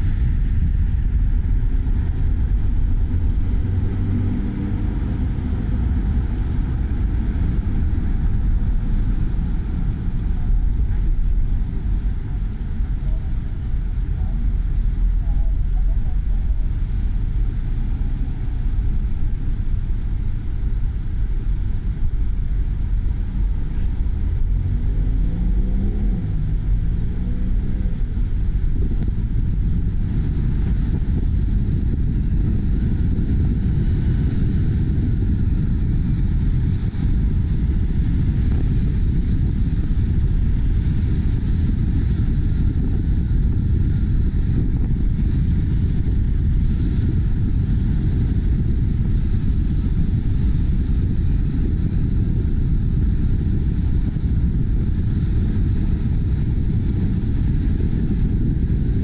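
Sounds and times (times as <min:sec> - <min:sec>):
car engine and road rumble: 0:00.0 - 0:59.0
wind rushing over microphone: 0:00.0 - 0:59.0
engine revving up: 0:24.6 - 0:28.1.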